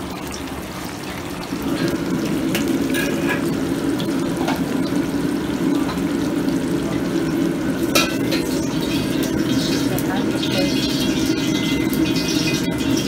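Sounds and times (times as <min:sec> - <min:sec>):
running water: 0:00.0 - 0:13.0
wok being scrubbed: 0:01.7 - 0:03.6, 0:07.8 - 0:13.0
metal clinks of woks and ladle: 0:02.5 - 0:03.5, 0:07.9 - 0:13.0.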